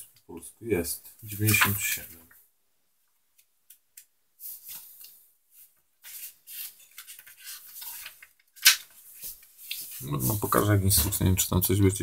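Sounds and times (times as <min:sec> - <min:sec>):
paper pages rustling: 0:04.5 - 0:11.2.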